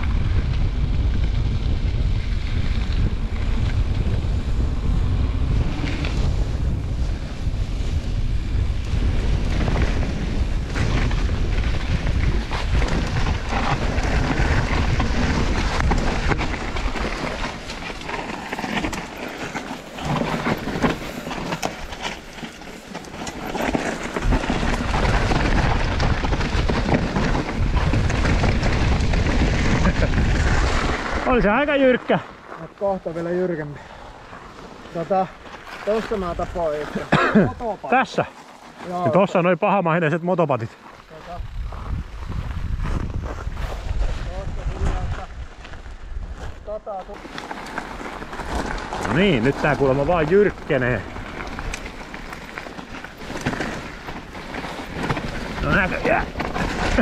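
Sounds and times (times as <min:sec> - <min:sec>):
bike rattling and knocking: 0:00.0 - 0:31.6, 0:46.8 - 0:57.0
wind buffeting microphone: 0:00.0 - 0:33.0, 0:40.7 - 0:57.0.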